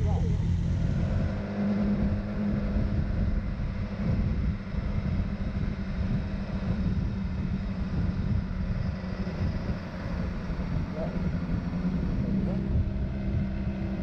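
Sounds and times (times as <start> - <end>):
motorcycle engine humming: 0.0 - 14.0
wind rush over microphone: 0.0 - 14.0.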